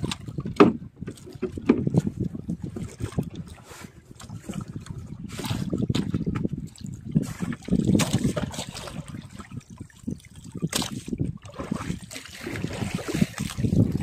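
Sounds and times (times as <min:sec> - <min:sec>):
water splashing against boat hull: 0:00.0 - 0:14.0.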